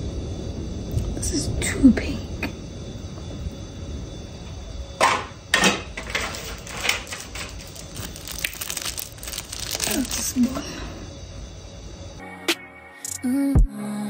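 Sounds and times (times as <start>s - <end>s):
rustling scrapes: 6.0s - 10.6s.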